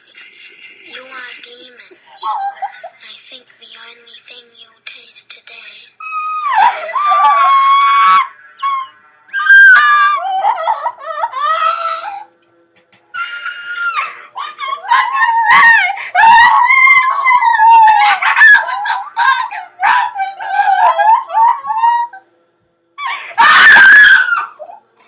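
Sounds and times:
women screaming: 6.0 - 12.3, 13.2 - 22.2, 23.0 - 24.8.

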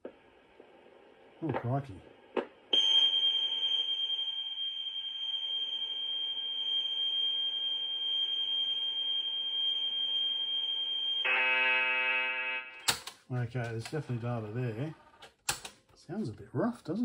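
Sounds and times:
steady high-pitched tape tone: 0.0 - 12.8.

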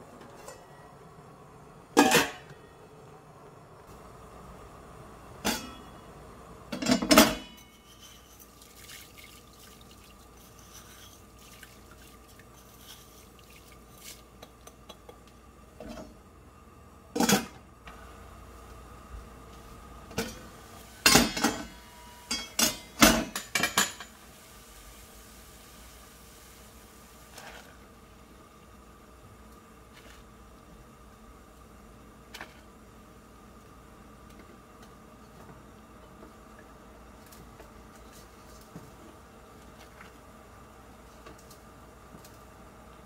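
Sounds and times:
faint steady hum: 0.0 - 43.0
metal pot and lid clanking: 2.0 - 2.5, 5.5 - 5.9, 6.8 - 8.4, 21.1 - 24.2.

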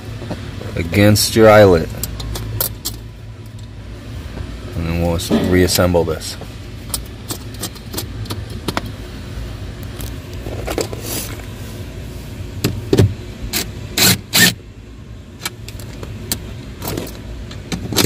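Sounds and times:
low steady hum: 0.0 - 18.0
clicks and taps of metal parts: 2.0 - 3.7, 6.9 - 9.0
cordless drill driving a nut: 13.6 - 14.6.

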